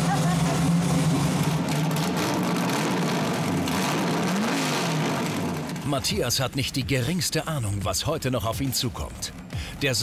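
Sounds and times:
buggy engine idling and revving: 0.0 - 9.8.

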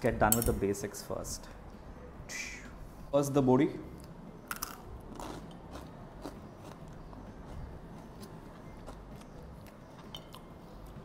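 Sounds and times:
crunchy food being chewed: 4.5 - 11.0.

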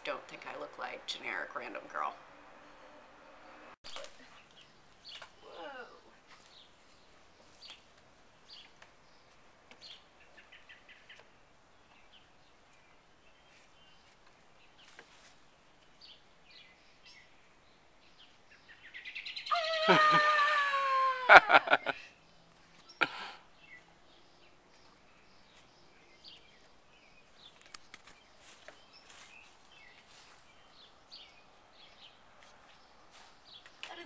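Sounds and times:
birds chirping: 0.0 - 34.0
woman shouting: 19.5 - 21.6.

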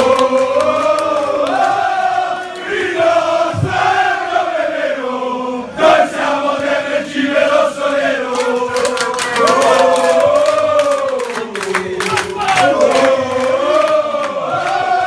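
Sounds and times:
rhythmic hand clapping: 0.0 - 2.8, 7.8 - 15.0
men chanting in unison: 0.0 - 15.0.

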